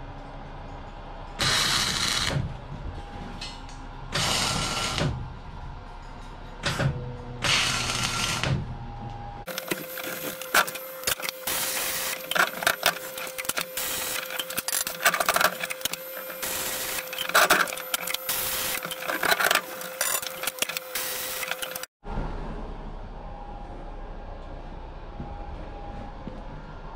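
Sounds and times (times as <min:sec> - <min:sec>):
welding arc crackling and sizzling: 0:09.5 - 0:22.0.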